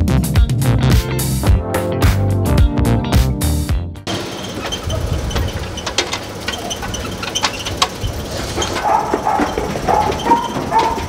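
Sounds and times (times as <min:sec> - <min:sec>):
metal clanks and knocks: 0:04.1 - 0:11.0
steady mechanical background: 0:04.1 - 0:11.0.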